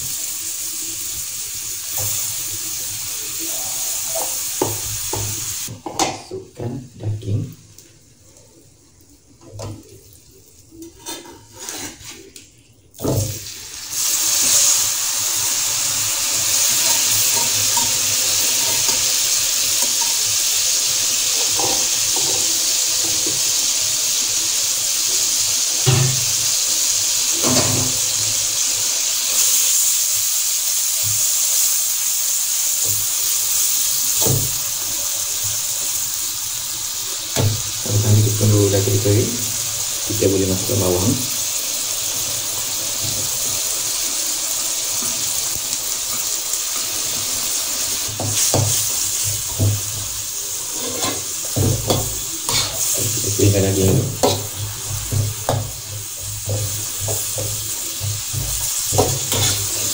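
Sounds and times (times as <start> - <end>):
meat sizzling in hot oil: 0.0 - 5.8, 13.0 - 59.9
metal spatula knocking wok: 53.8 - 59.9.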